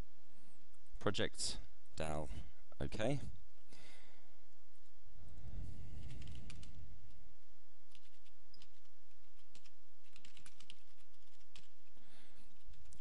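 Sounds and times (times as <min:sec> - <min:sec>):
typing on keyboard: 0:06.0 - 0:06.8, 0:07.9 - 0:13.0.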